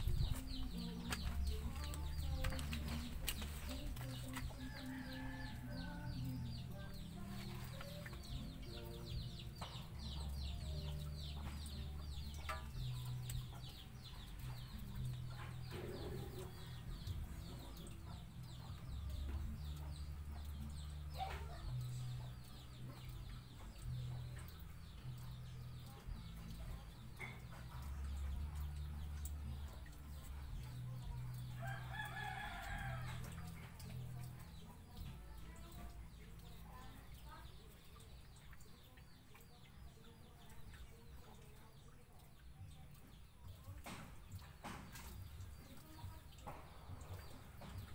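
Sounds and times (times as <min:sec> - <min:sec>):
low pulsing hum: 0:00.0 - 0:09.3
chickens clucking: 0:00.0 - 0:36.6.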